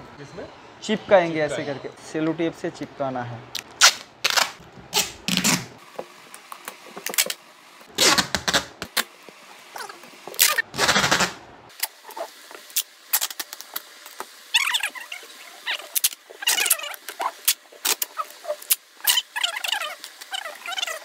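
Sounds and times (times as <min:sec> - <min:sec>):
packing tape ripping off roll: 0:03.6 - 0:05.8, 0:07.0 - 0:09.1, 0:09.8 - 0:12.0, 0:12.7 - 0:13.8, 0:16.0 - 0:21.0.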